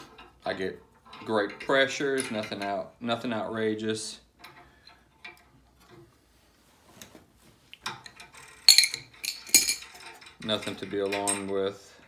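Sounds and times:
metal tools clinking: 0:00.1 - 0:03.0, 0:07.8 - 0:11.8.

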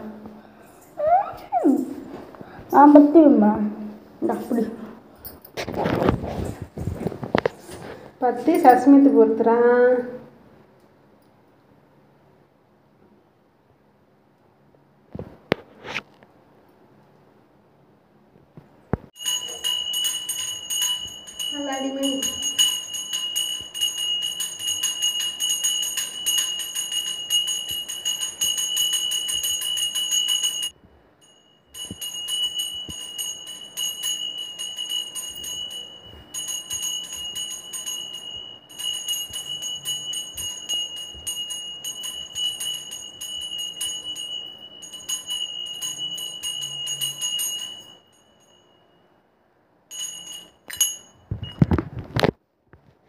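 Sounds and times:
hand bell ringing: 0:19.2 - 0:49.1, 0:49.9 - 0:51.8.

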